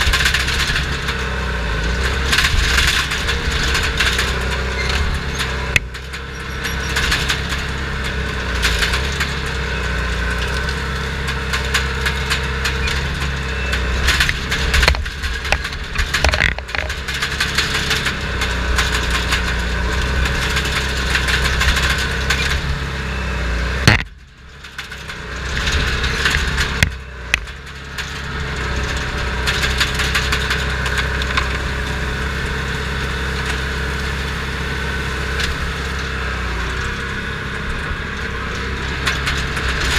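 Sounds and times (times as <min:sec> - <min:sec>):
diesel engine running under load: 0:00.0 - 0:39.9
track clatter: 0:00.0 - 0:39.9
brush and wood cracking and splintering: 0:14.0 - 0:22.5, 0:23.8 - 0:31.7.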